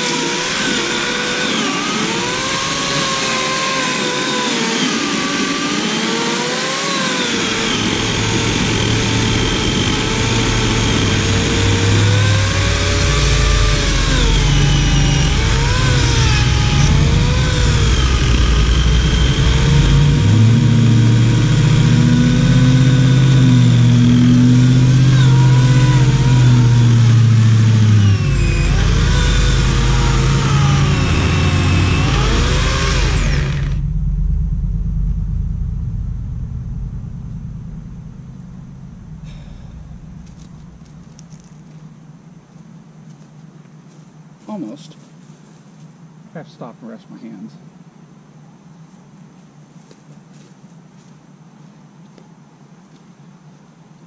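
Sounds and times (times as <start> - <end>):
electric chainsaw cutting stump: 0.0 - 33.9
heavy low rumble: 7.4 - 42.1.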